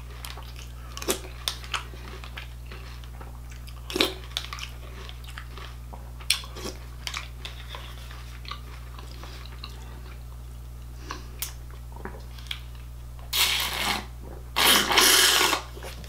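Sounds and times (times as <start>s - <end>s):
slurping milk from a bowl: 13.3s - 15.7s.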